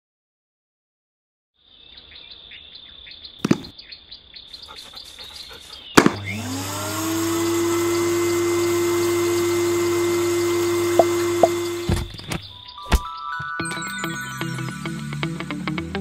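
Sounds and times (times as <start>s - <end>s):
vacuum motor whine: 6.0s - 12.3s.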